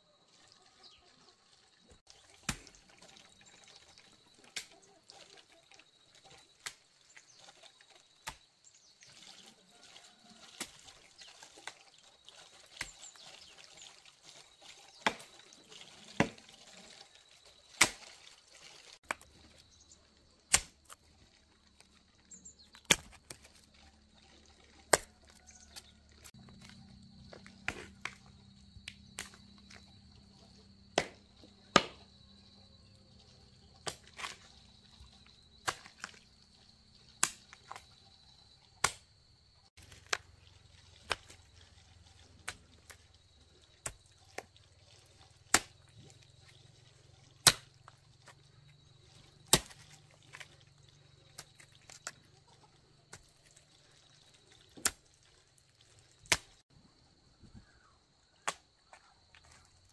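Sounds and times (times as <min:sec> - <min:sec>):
hoe chopping into soil: 0:22.7 - 0:23.4, 0:49.5 - 0:49.9.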